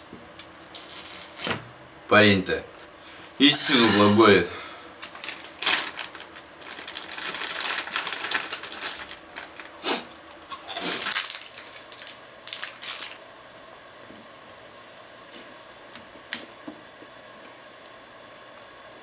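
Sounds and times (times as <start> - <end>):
plastic snack packet crinkling: 5.0 - 9.8, 10.5 - 13.2.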